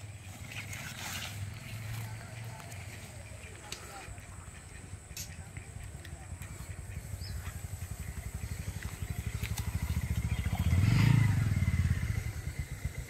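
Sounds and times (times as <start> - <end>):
small engine puttering: 0.0 - 3.1, 5.8 - 13.0.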